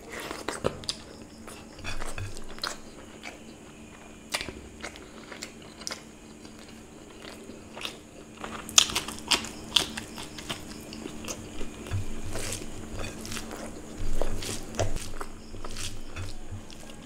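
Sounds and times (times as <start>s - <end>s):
wet chewing: 0.0s - 17.0s
crunchy bites: 4.3s - 17.0s.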